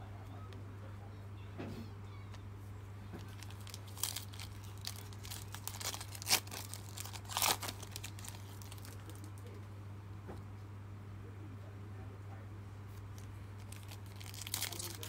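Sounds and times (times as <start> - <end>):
foil wrapper crinkling and tearing: 3.1 - 9.5, 13.0 - 15.0.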